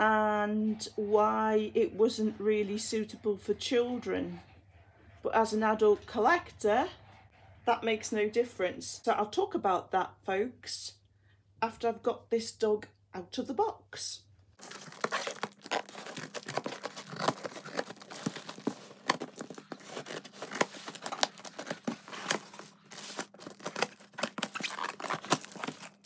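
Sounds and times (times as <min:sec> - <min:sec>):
scissors cutting packing tape: 0:14.6 - 0:26.0.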